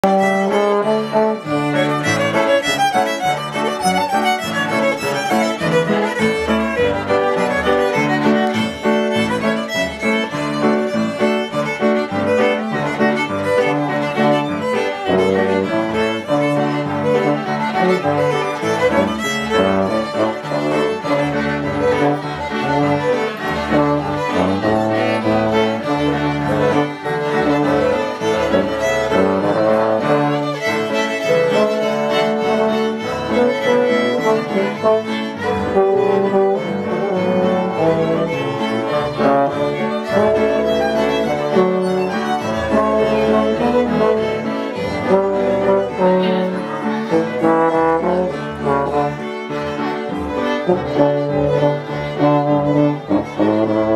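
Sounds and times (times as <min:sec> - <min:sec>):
bassoon and brass horn bass: 0:00.0 - 0:53.9
fiddles playing melody: 0:00.0 - 0:53.9.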